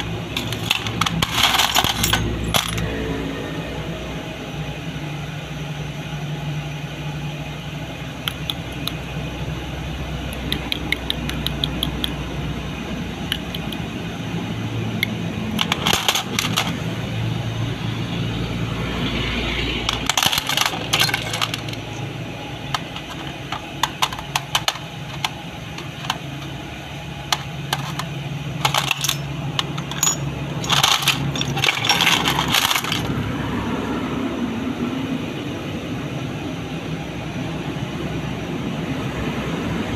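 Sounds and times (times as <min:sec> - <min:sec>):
metal parts clinking and rattling: 0:00.0 - 0:02.9, 0:13.3 - 0:13.8, 0:15.0 - 0:17.0, 0:19.7 - 0:26.6, 0:27.2 - 0:33.2
steady low hum: 0:00.0 - 0:33.5.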